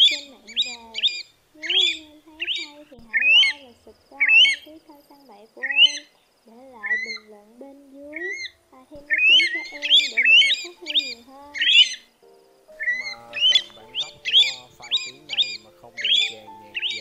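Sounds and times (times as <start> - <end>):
plover whistled calls: 0.0 - 7.4, 8.1 - 17.0
background music sustained chords: 6.5 - 17.0.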